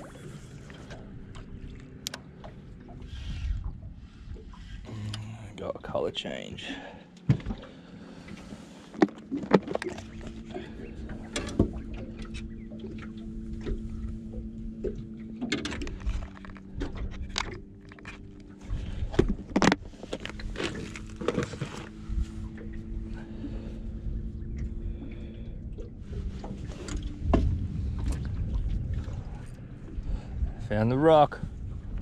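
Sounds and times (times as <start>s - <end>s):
low motor hum: 0.0s - 32.0s.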